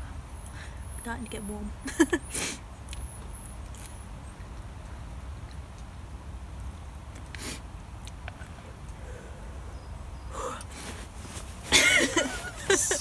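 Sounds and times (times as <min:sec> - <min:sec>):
woman laughing: 0:01.8 - 0:02.3, 0:11.7 - 0:13.0.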